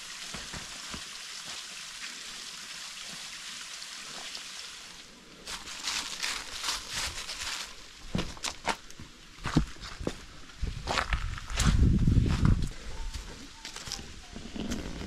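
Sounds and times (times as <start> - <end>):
small waterfall splashing: 0.0 - 6.9
footsteps on sandy pebbly trail: 5.5 - 15.0.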